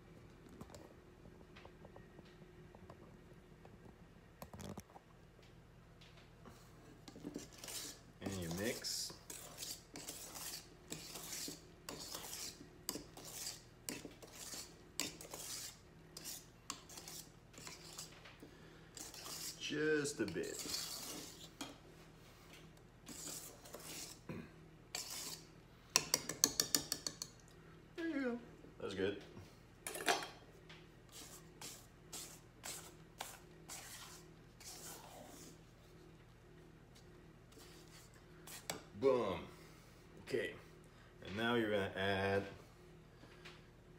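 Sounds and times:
whisk scraping metal bowl: 0:07.0 - 0:18.2, 0:18.9 - 0:21.8, 0:23.0 - 0:24.2, 0:24.9 - 0:27.3, 0:31.1 - 0:35.6, 0:37.5 - 0:38.9.

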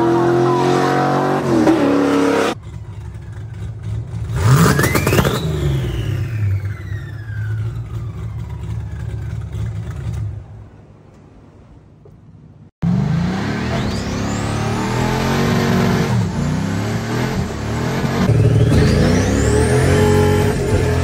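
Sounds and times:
car engine accelerating hard: 0:00.0 - 0:02.6, 0:12.8 - 0:21.0
car engine idling and revving: 0:00.0 - 0:21.0.

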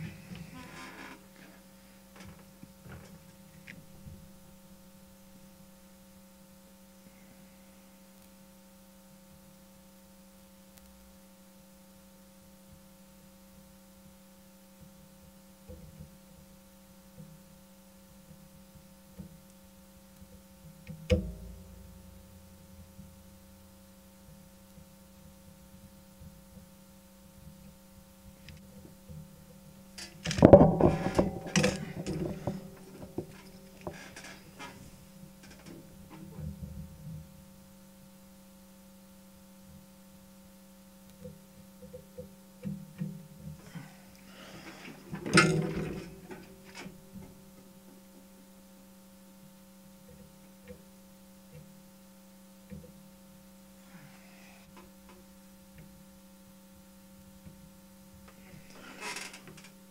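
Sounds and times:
low electrical mains hum: 0:00.0 - 0:59.9
clattering and knocking: 0:30.0 - 0:36.8, 0:44.7 - 0:47.4.

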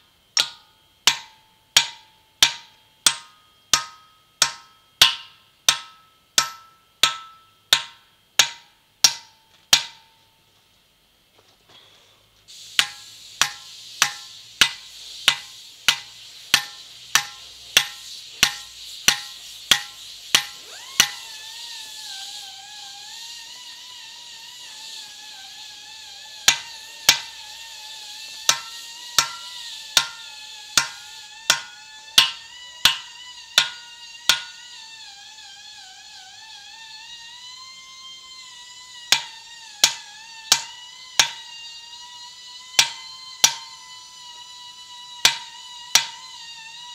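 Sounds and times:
hammer striking steel wedges: 0:00.3 - 0:10.3, 0:12.6 - 0:21.5, 0:26.4 - 0:27.6, 0:28.3 - 0:34.8, 0:39.0 - 0:41.6, 0:42.8 - 0:44.0, 0:45.2 - 0:46.4.

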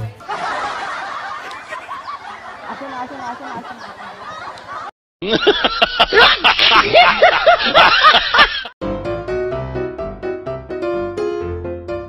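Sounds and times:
crowd laughing: 0:00.0 - 0:08.8.

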